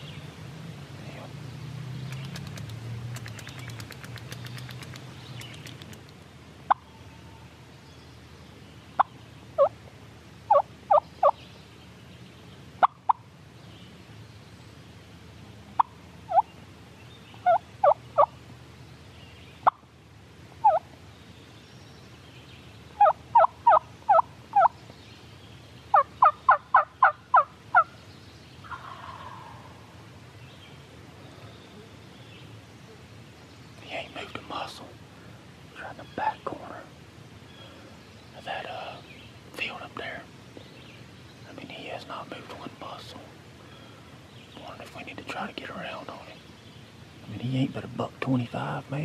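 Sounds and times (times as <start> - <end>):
sharp clicks: 2.0 - 6.2
turkey yelping: 20.6 - 20.8, 23.0 - 24.7.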